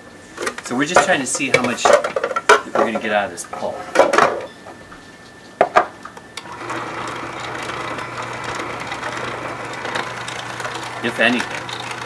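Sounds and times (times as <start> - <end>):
auger grinding pulp: 6.4 - 12.0
juicer motor humming: 6.4 - 12.0.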